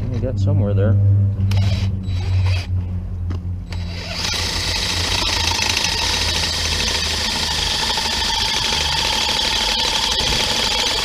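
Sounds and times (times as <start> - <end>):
drill boring into metal: 3.7 - 11.0.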